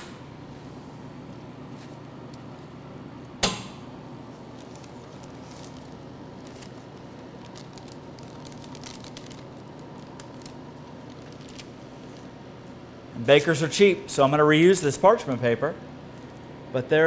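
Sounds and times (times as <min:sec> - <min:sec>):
parchment paper crinkling: 0:04.3 - 0:12.4.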